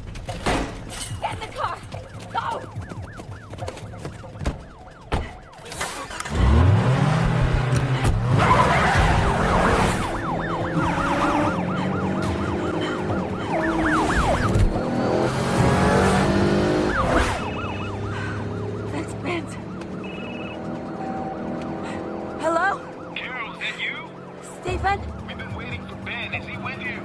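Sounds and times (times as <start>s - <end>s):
police sirens wailing: 1.2s - 27.0s
car engine revving: 6.1s - 27.0s.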